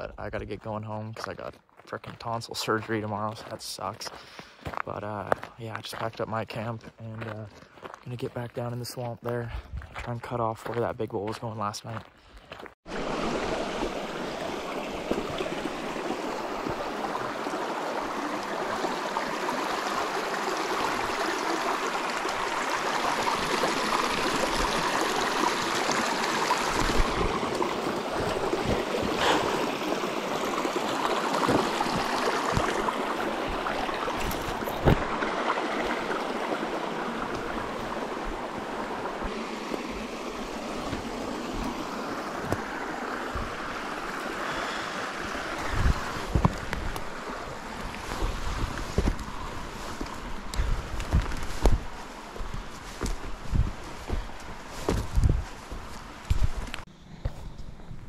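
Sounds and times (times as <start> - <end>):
creek rushing over stones: 12.8 - 56.9.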